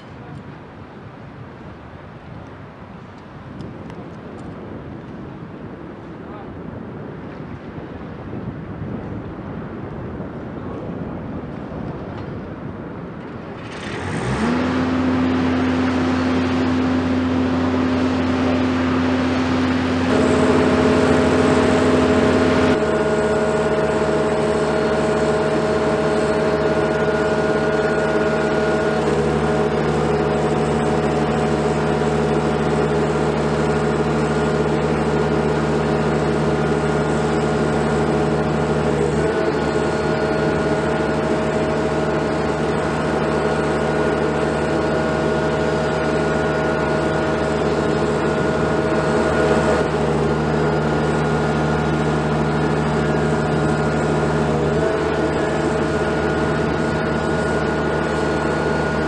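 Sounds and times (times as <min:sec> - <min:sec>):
boat hoist engine whining: 0:13.5 - 0:59.0.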